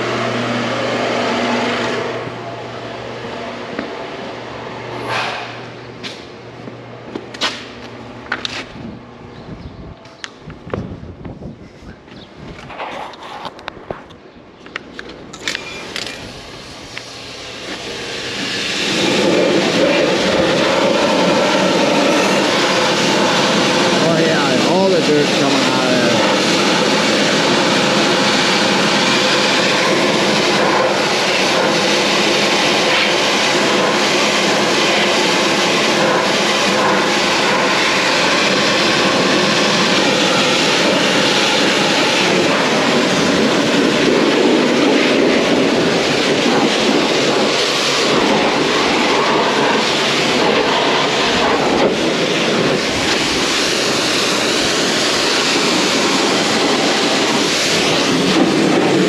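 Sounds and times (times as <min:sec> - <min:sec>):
tractor diesel engine running: 0:14.9 - 0:59.0.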